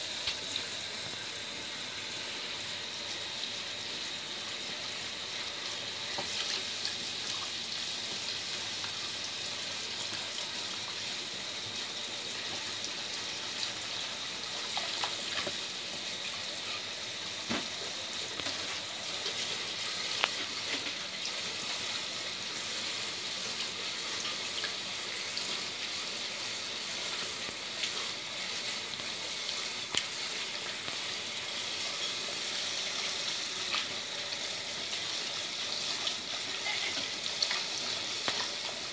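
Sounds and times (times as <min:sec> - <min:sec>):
tap water splashing: 0:06.1 - 0:09.0, 0:17.4 - 0:19.4, 0:36.0 - 0:38.9.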